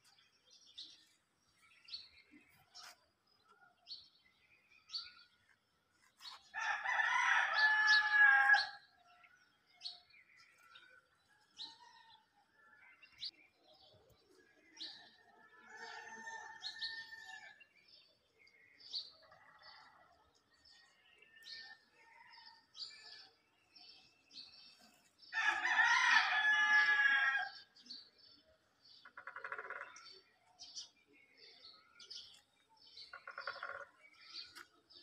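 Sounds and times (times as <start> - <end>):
rooster crowing: 6.6 - 8.8, 25.4 - 27.5.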